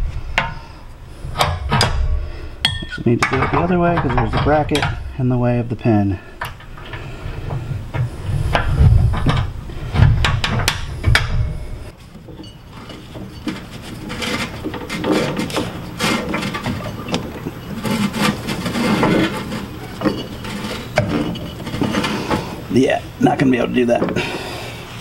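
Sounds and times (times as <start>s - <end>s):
metal knocks and clanks: 1.3s - 5.3s, 6.4s - 22.7s
steel rubbing and scraping: 11.5s - 25.0s.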